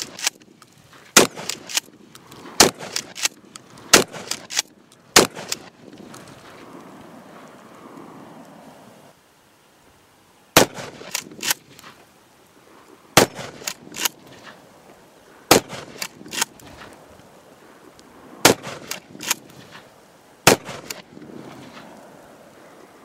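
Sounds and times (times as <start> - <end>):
shotgun slide clacks: 0.0 - 0.6, 1.2 - 5.7, 10.6 - 11.9, 13.2 - 14.6, 15.5 - 16.9, 18.5 - 19.8, 20.5 - 21.1
shotgun blasts: 1.2 - 1.9, 2.6 - 3.3, 3.9 - 4.6, 5.2 - 5.7, 10.6 - 11.6, 13.2 - 14.2, 15.5 - 16.5, 18.4 - 19.4, 20.4 - 21.0.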